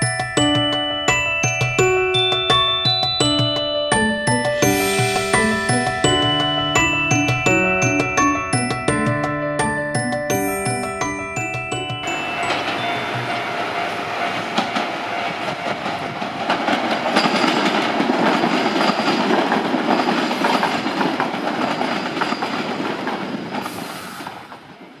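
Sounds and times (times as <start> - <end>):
electric train running past: 0.0 - 25.0
wheels clicking over rail joints: 11.4 - 24.8.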